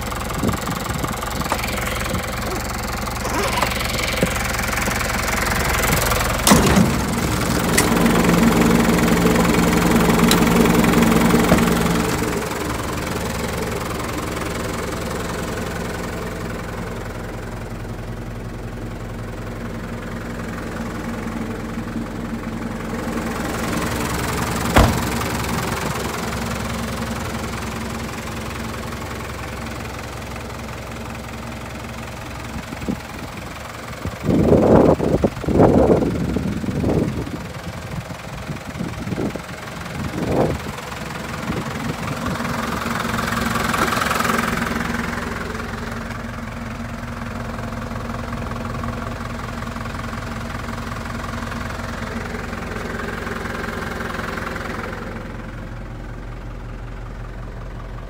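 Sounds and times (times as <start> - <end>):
truck engine idling: 0.0 - 58.0
sharp clicks and knocks: 6.5 - 8.2, 10.2 - 10.8, 24.7 - 25.3.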